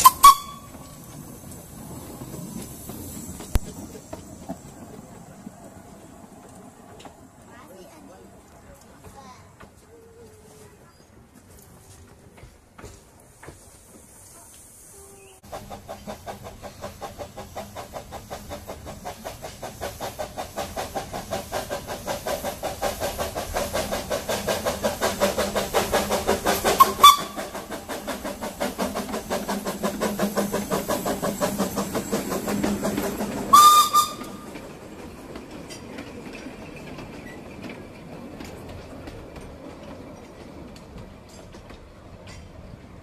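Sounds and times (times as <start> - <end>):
steam whistle blasts: 0.0 - 1.0, 26.8 - 27.6, 33.5 - 34.6
steam locomotive chuffing: 0.0 - 10.0, 10.8 - 43.0.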